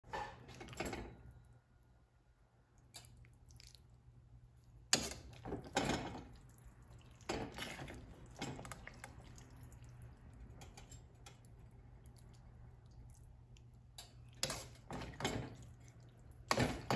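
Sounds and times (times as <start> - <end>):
wet pasta sounds: 0.1 - 16.9
metal utensil scraping skillet and plate: 14.4 - 15.6.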